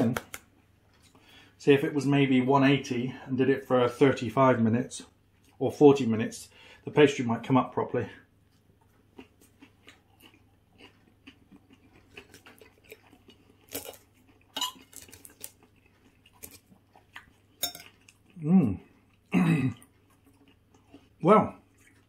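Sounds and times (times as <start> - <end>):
chewing: 8.4 - 22.0
cutlery clinking on a plate: 17.6 - 17.9.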